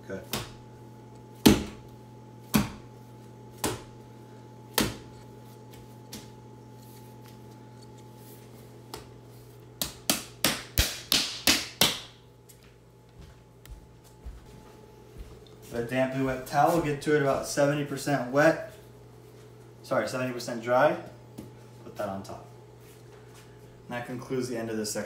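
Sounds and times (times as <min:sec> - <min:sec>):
faint steady hum: 0:00.0 - 0:25.0
dough slapping on stone: 0:03.5 - 0:04.0, 0:09.8 - 0:12.2.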